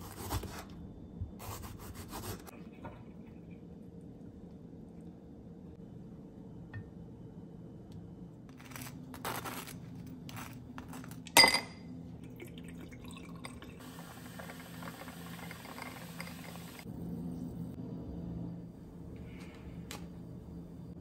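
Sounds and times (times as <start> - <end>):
tableware clink: 11.3 - 11.9.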